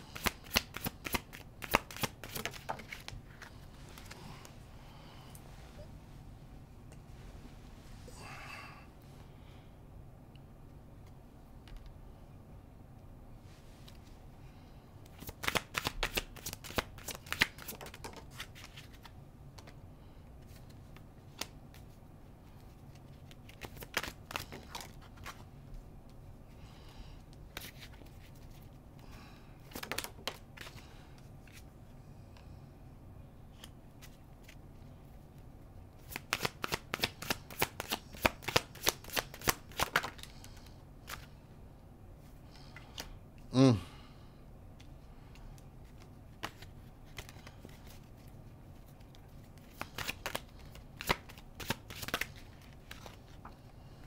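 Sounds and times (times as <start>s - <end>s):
cards being shuffled: 0.1s - 4.5s, 15.1s - 19.8s, 20.4s - 25.5s, 27.5s - 28.8s, 29.6s - 30.8s, 36.0s - 41.4s, 45.6s - 53.5s.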